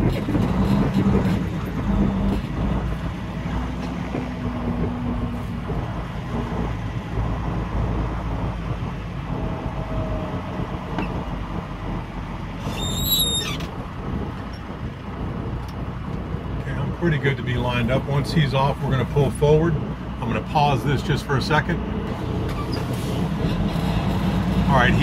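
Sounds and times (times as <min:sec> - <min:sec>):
diesel truck engine rumbling: 0:00.0 - 0:25.0
brief high-pitched squeal: 0:12.6 - 0:13.6.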